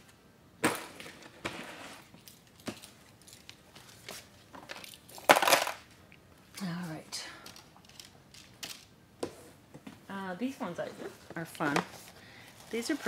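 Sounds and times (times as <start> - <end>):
items moved and set down: 0.6 - 5.9.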